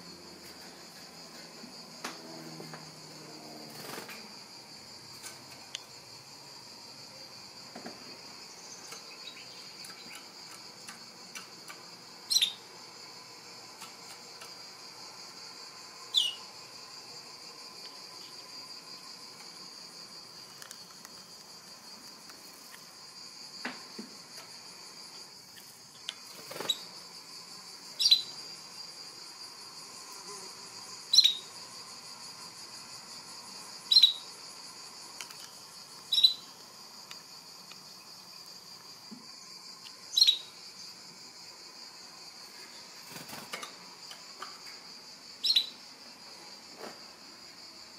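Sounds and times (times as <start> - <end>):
faint high-pitched hiss: 0.0 - 47.9
canary chirping: 12.3 - 12.6, 16.1 - 16.5, 28.0 - 28.3, 31.1 - 31.4, 33.9 - 34.3, 40.2 - 40.5, 45.4 - 45.8.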